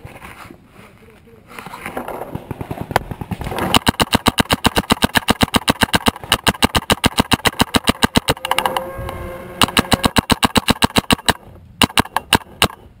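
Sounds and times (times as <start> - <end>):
paintball marker firing: 2.3 - 8.8, 9.6 - 13.0
scattered clicks: 2.5 - 12.9.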